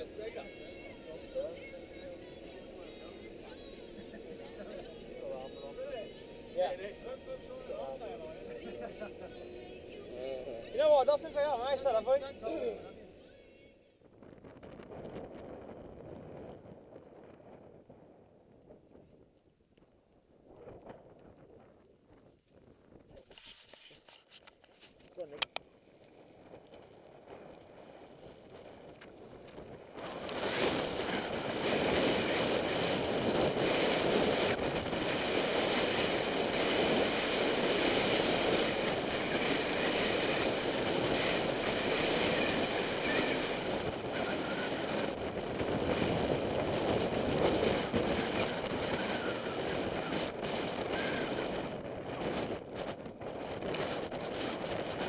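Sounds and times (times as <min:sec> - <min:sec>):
wind buffeting microphone: 0:14.0 - 0:23.7, 0:25.8 - 0:55.0
bike tyres rolling over gravel: 0:14.9 - 0:55.0.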